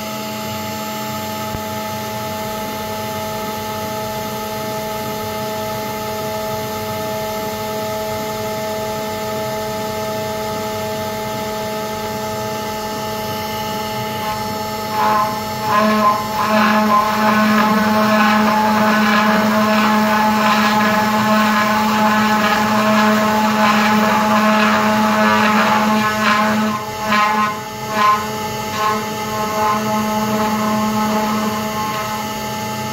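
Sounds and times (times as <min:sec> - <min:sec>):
router spindle whining: 0:12.6 - 0:32.9
router bit cutting wood: 0:13.6 - 0:32.7.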